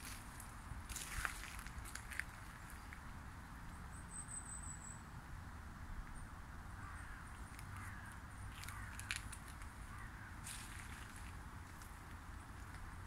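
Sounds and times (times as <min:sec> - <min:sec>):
footsteps on gravel: 0:00.0 - 0:03.0, 0:07.6 - 0:12.9
low wind rumble: 0:05.0 - 0:13.0
bird calling: 0:06.8 - 0:10.9.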